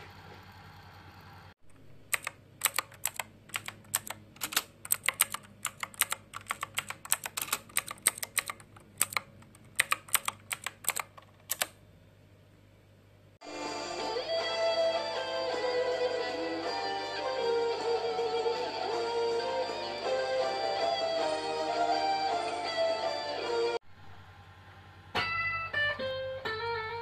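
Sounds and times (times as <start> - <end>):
typing on laptop keyboard: 2.0 - 11.8.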